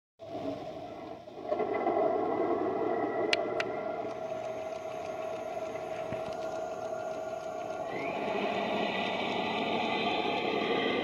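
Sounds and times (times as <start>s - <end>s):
sharp clicks: 3.3s - 11.0s
diesel tank engine through small speaker: 4.3s - 11.0s.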